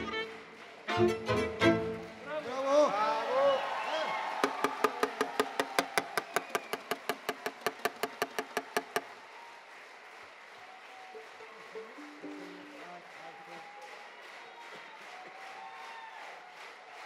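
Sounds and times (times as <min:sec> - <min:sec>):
audience clapping: 0:00.0 - 0:17.0
sharp hand claps close by: 0:04.4 - 0:09.5.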